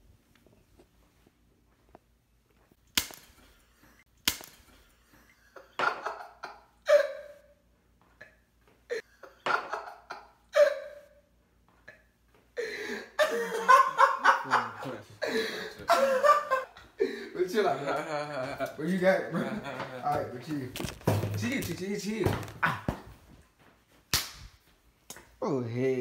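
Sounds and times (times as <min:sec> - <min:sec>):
sharp smacks: 0:02.9 - 0:03.5, 0:04.2 - 0:04.8, 0:24.1 - 0:25.3
people laughing: 0:12.7 - 0:20.8.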